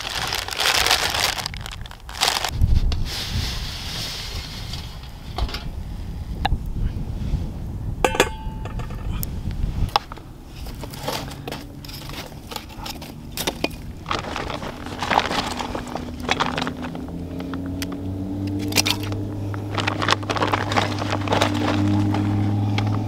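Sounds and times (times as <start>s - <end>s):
fire crackling: 0.0s - 22.0s
low hum: 11.6s - 23.0s.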